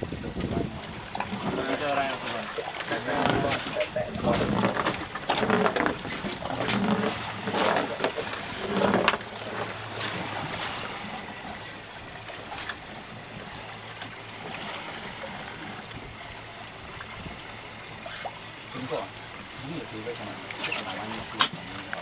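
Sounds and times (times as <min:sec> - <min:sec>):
water slapping against boat hull: 0:00.0 - 0:22.0.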